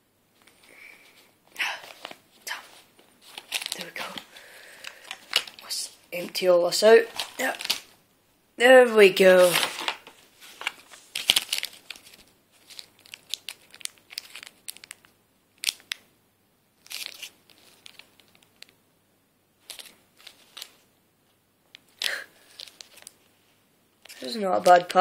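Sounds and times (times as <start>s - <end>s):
plastic packets crinkling: 3.2s - 5.8s, 7.0s - 7.9s, 9.2s - 16.0s, 16.8s - 18.7s, 19.6s - 20.8s, 21.8s - 23.2s.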